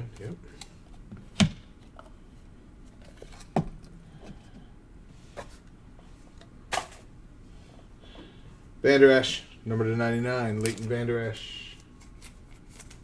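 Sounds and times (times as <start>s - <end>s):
cards and packaging handling noise: 0.0s - 2.2s, 2.8s - 4.6s, 10.4s - 13.0s.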